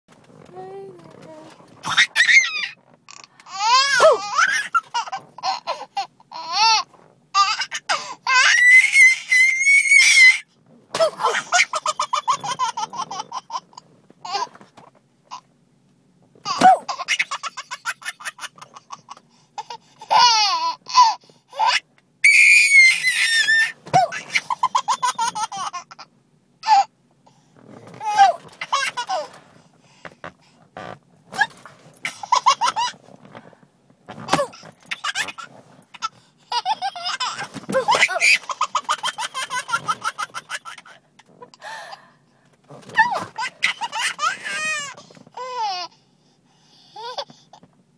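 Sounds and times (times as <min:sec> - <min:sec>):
baby laughing and squealing: 0:01.8 - 0:10.4, 0:11.0 - 0:14.6, 0:16.4 - 0:26.9, 0:28.0 - 0:29.4, 0:31.4 - 0:33.0, 0:34.2 - 0:41.0, 0:42.8 - 0:45.9.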